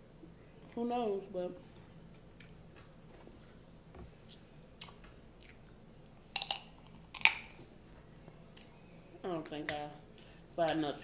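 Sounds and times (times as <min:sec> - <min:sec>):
faint chewing: 0:02.2 - 0:02.9, 0:04.3 - 0:07.6
crab shell crunching: 0:06.2 - 0:07.6.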